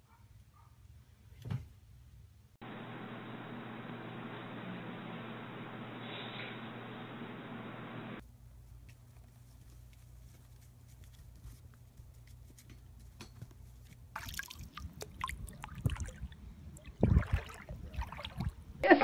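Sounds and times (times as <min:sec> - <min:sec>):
shallow water splashing: 0:14.1 - 0:18.8.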